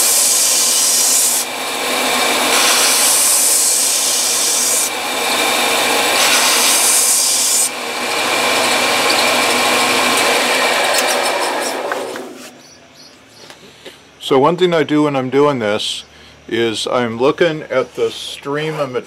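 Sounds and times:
belt sander grinding: 0.0s - 12.8s
motor hum: 0.0s - 13.5s.

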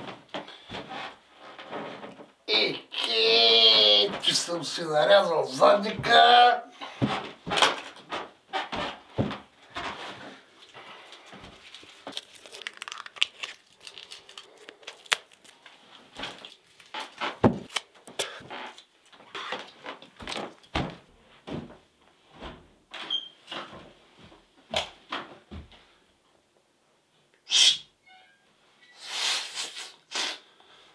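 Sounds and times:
plaster wrappers tearing: 11.6s - 18.0s.

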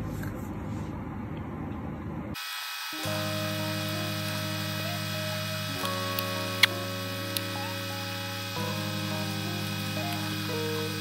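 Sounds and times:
soft background music: 3.0s - 11.0s.

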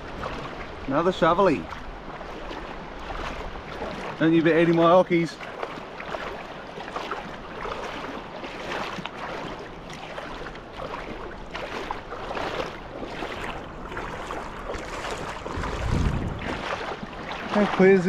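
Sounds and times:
feet wading through water: 0.0s - 18.0s.

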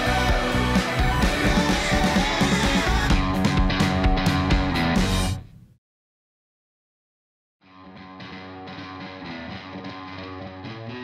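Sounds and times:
distorted electric guitar music: 0.0s - 5.5s, 7.7s - 11.0s.

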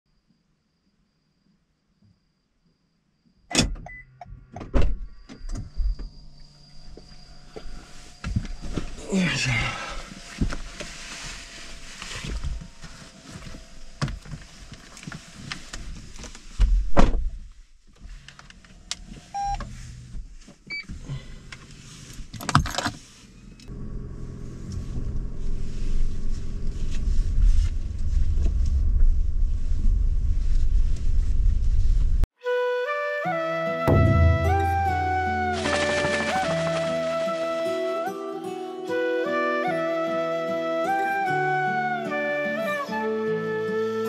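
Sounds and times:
car engine rumbling: 9.9s - 16.6s, 17.3s - 22.3s, 22.9s - 32.3s
rustling and clicks in car: 10.2s - 32.2s
short beeps: 19.4s - 19.6s.

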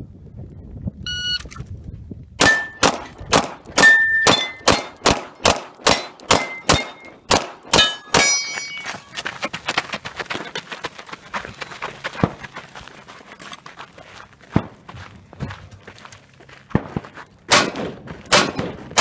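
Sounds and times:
shot timer beep: 1.1s - 1.5s
steel targets ringing: 2.4s - 3.0s, 3.7s - 5.0s, 5.8s - 9.1s
pistol shots: 2.4s - 8.4s, 17.5s - 19.0s.

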